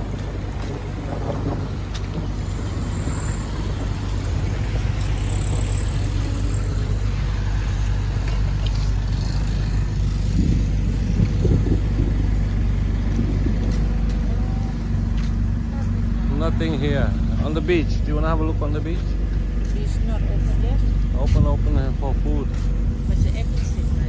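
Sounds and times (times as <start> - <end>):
vehicle engines running: 0.0 - 24.0.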